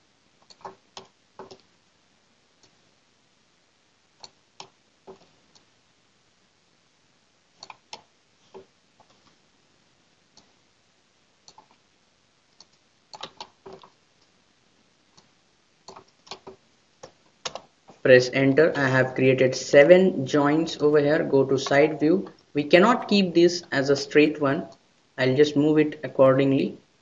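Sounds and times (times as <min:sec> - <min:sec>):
low steady hiss: 0:00.0 - 0:27.0
computer mouse clicks: 0:00.4 - 0:01.7, 0:04.2 - 0:05.7, 0:07.6 - 0:09.4, 0:11.4 - 0:11.8, 0:12.5 - 0:14.3, 0:15.1 - 0:17.7.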